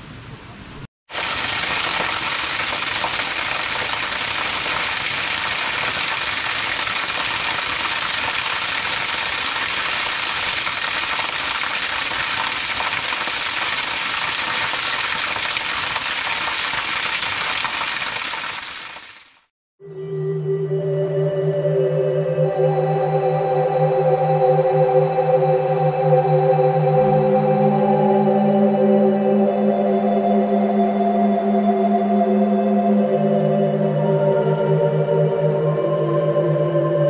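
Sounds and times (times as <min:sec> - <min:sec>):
waterfall splashing on rocks: 0:01.1 - 0:19.5.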